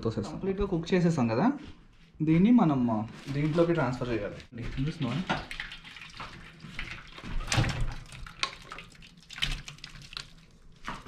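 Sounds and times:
wet liquid scooping sounds: 3.2 - 11.0.

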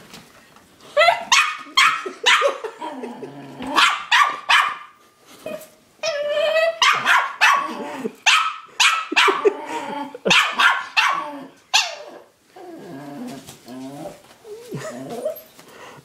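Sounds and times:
small dog barking: 1.0 - 2.6, 3.7 - 4.9, 6.8 - 9.5, 10.3 - 12.1.

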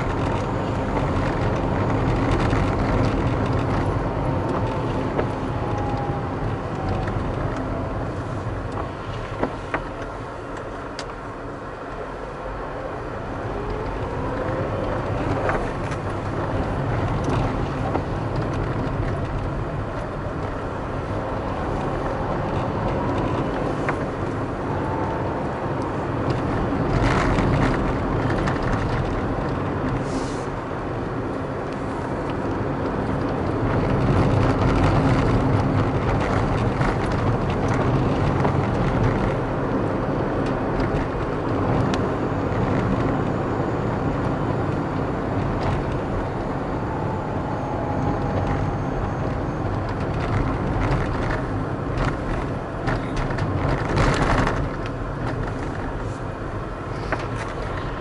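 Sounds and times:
car engine accelerating: 0.0 - 58.0
tyre road noise: 0.0 - 58.0
rush of air: 30.0 - 30.6.

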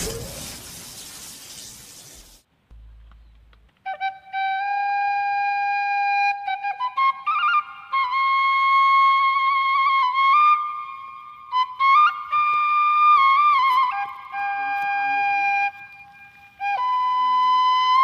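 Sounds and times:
slow flute melody: 3.8 - 18.0.

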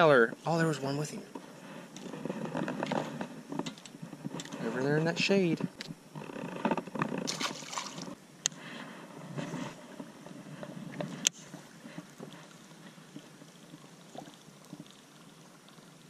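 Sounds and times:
fish splashing in water: 7.3 - 8.2.

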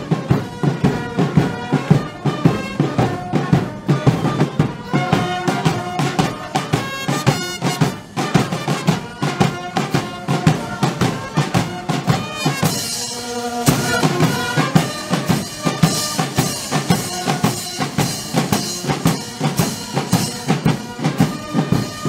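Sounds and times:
music with steady drum beat: 0.0 - 22.0.

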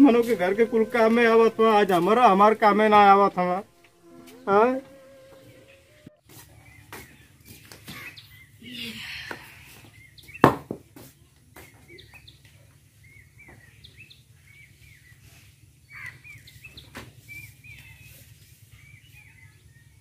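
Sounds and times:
small birds chirping: 5.3 - 10.5, 11.1 - 20.0.

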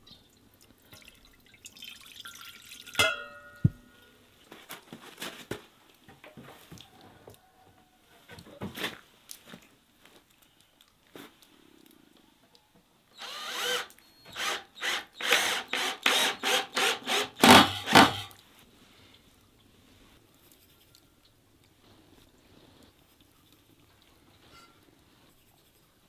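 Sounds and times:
cordless drill whining: 13.2 - 18.3.

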